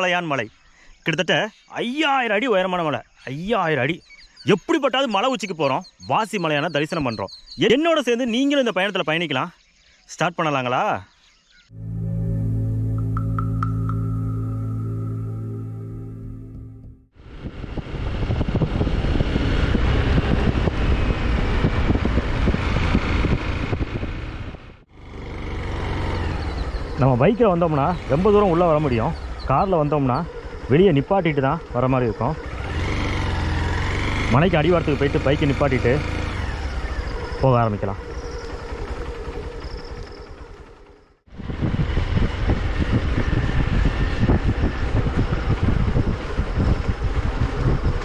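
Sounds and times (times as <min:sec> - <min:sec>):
wind rush on microphone: 0:17.2 - 0:24.8, 0:41.3 - 0:48.0
motorbike engine running: 0:17.4 - 0:30.9, 0:31.5 - 0:48.0.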